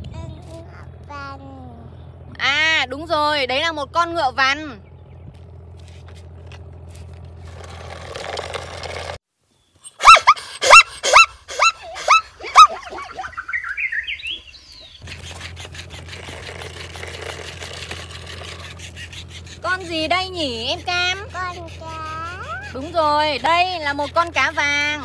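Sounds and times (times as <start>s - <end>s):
zebra yelping barks: 9.9s - 17.0s, 18.1s - 25.0s.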